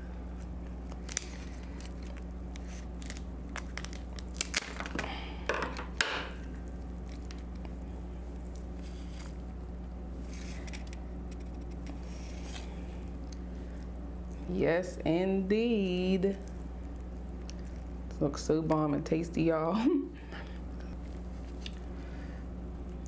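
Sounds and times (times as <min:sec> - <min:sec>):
steady low hum: 0:00.0 - 0:23.0
crab shell cracking: 0:00.4 - 0:05.1, 0:05.8 - 0:07.8.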